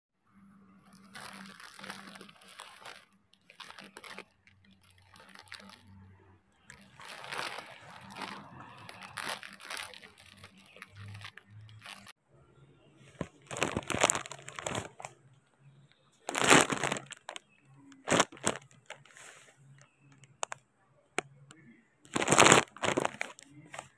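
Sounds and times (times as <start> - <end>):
dry leaves rustling and crunching: 0.9 - 5.8, 6.7 - 12.1, 13.2 - 15.1, 16.3 - 17.4, 18.0 - 19.4, 22.1 - 23.9.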